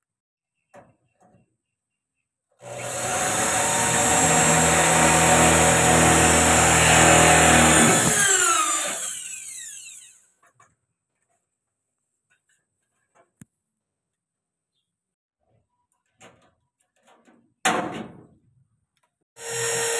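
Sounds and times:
electric drill running: 2.6 - 10.3, 19.4 - 19.9.

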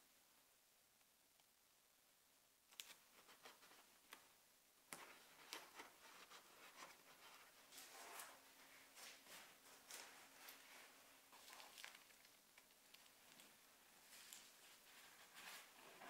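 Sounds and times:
paper tape crinkling: 4.9 - 16.0.

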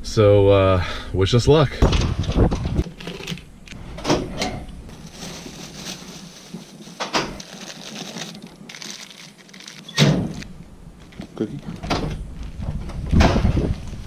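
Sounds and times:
plastic bag rustling: 4.9 - 10.5.

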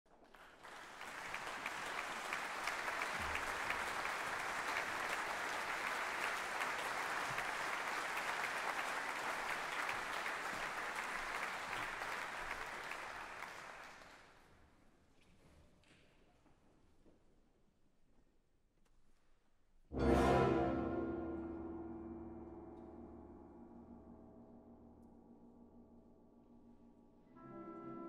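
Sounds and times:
audience applauding: 0.1 - 14.5.

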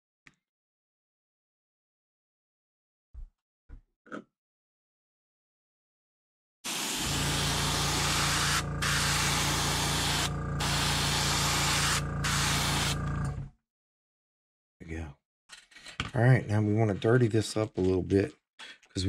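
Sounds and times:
airbrush spraying hiss: 6.7 - 13.0.

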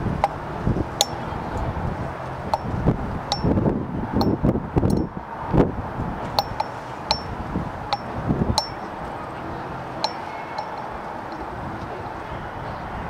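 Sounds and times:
outdoor background noise: 0.0 - 13.0
light ringing clinks: 3.3 - 3.6, 6.4 - 8.9, 10.0 - 11.5.

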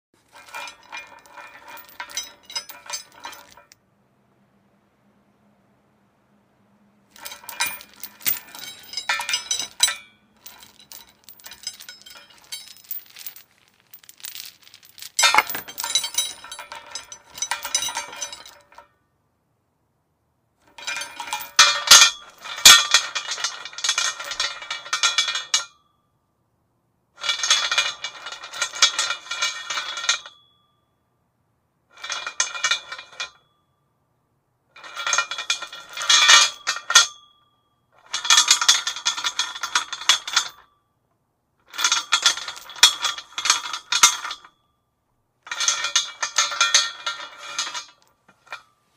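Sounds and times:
metal chain jangling: 0.3 - 3.8, 7.2 - 18.8, 20.8 - 24.5.

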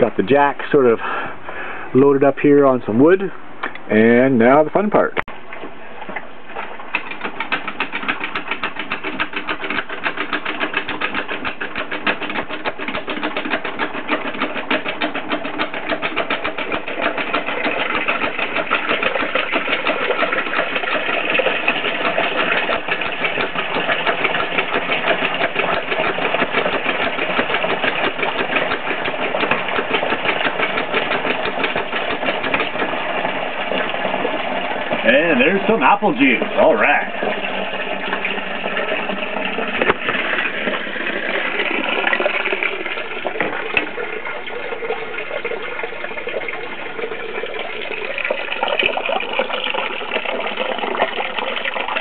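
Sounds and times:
small machine clattering: 6.9 - 34.3.

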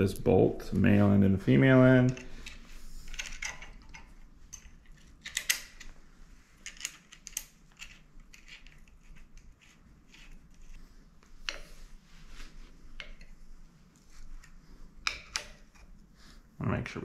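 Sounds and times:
light metallic clicks of bolt: 2.1 - 5.9.

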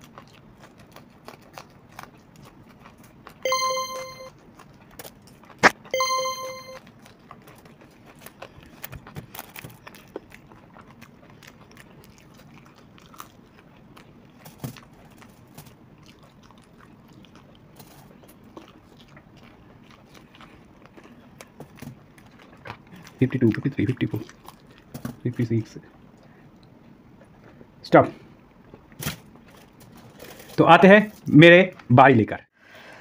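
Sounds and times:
people chewing crunchy snacks: 0.0 - 3.7, 4.3 - 6.2, 6.8 - 31.9
short electronic beep: 3.5 - 4.3, 5.9 - 6.8.

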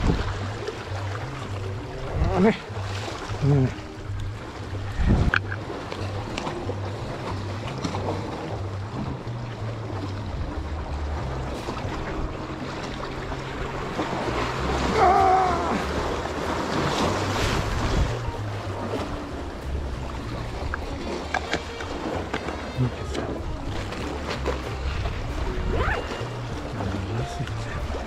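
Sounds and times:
wind buffeting microphone: 0.0 - 6.8
sea surf splashing on concrete: 0.0 - 28.0.

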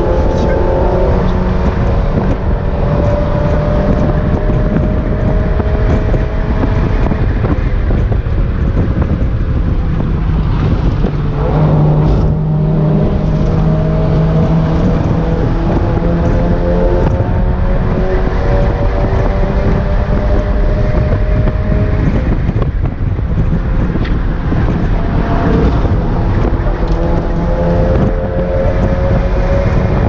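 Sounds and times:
car engine from inside: 0.0 - 6.3
wind and road noise: 0.0 - 30.0.

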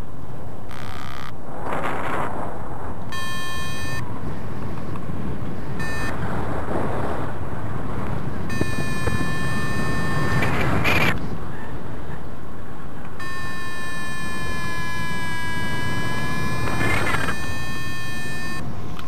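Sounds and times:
wind over microphone: 0.0 - 19.0
variometer electronic tone: 3.1 - 4.1, 5.8 - 6.2, 8.4 - 11.2, 13.2 - 18.7.

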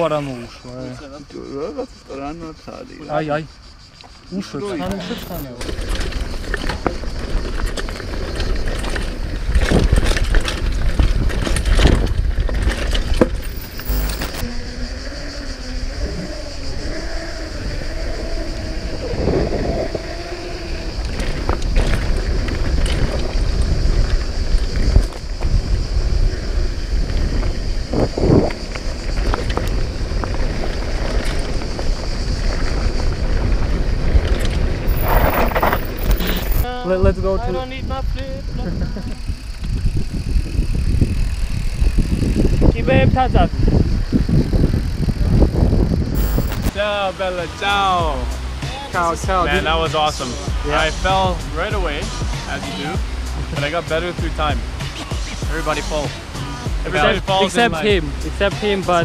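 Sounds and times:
tyres running over dirt: 4.7 - 14.4, 20.1 - 36.7, 44.3 - 48.0
wind buffeting microphone: 4.8 - 47.4
bike rattling over bumps: 5.0 - 14.4, 19.1 - 36.7, 38.5 - 46.8
bike knocks and rattles: 5.3 - 14.4, 21.2 - 25.7.

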